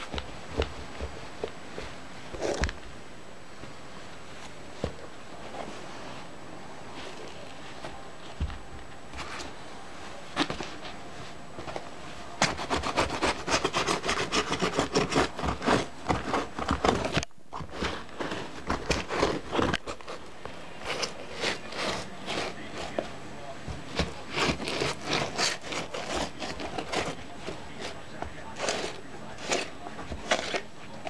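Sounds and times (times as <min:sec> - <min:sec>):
rubber boot sole scraping trainers: 0:23.7 - 0:31.0.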